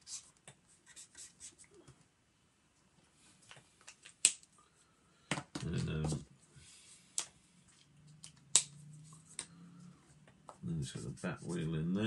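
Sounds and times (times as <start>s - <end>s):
marker scratching on paper: 0.0s - 1.6s, 10.9s - 11.7s.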